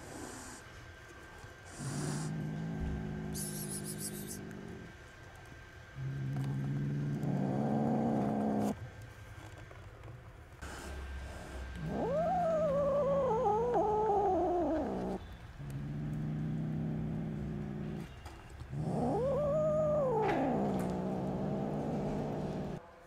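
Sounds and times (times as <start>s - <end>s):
kitten meowing: 11.8s - 15.2s, 18.8s - 22.8s.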